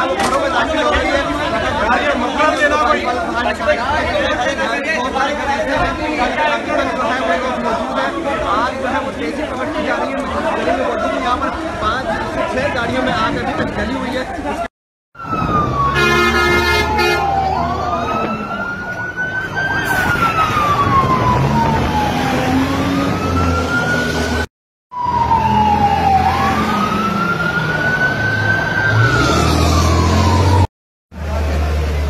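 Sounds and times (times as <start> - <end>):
fire engine siren wailing: 15.2 - 30.7
horn blaring: 15.8 - 17.5.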